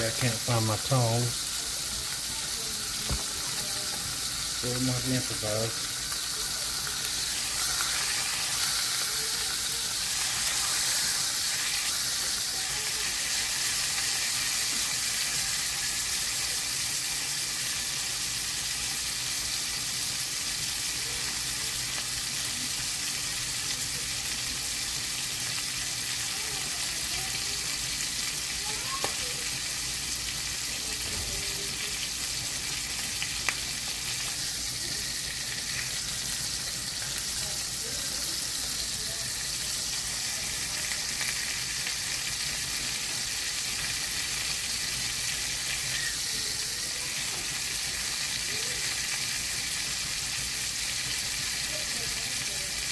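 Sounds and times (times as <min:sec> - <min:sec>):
meat sizzling in oil: 0:00.0 - 0:52.9.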